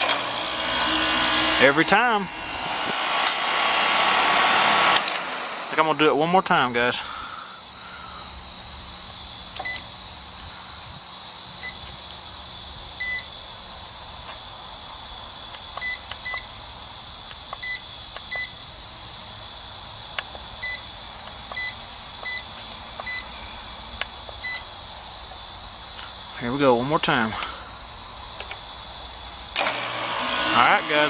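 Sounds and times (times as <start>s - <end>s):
insect trill: 5.4s - 29.6s.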